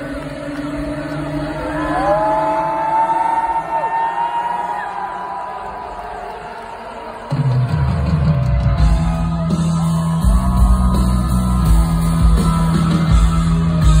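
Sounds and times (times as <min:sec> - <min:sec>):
drums: 0:06.8 - 0:14.0
live hard rock band playing: 0:07.3 - 0:14.0.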